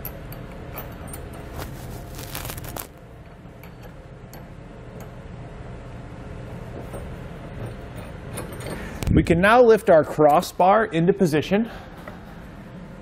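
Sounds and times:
low steady hum: 0:00.0 - 0:13.0
metal clicks of bolts and nuts: 0:07.6 - 0:08.8.

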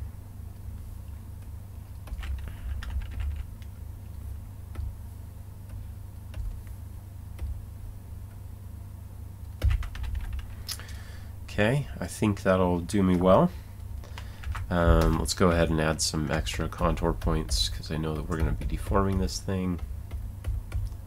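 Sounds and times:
low steady hum: 0:00.0 - 0:21.0
keyboard and mouse clicks: 0:14.0 - 0:15.3, 0:16.3 - 0:21.0.

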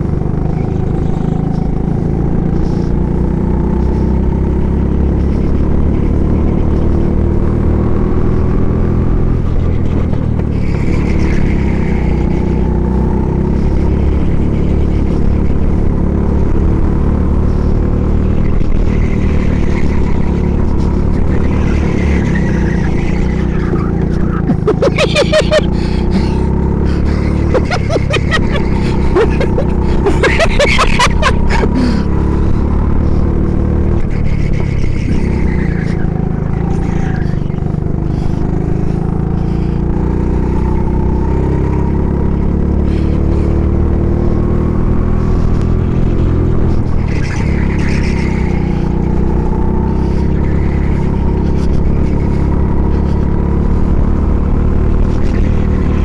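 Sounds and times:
go-kart engine racing: 0:00.0 - 0:56.0.

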